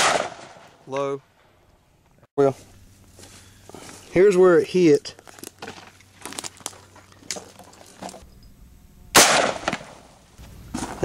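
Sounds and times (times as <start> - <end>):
gunshot: 0.0 - 0.7, 9.1 - 10.1
bullet striking glass: 9.2 - 10.0.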